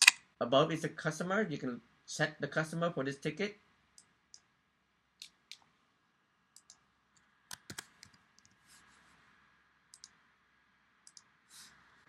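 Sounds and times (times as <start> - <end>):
faint typing clicks: 7.5 - 8.6.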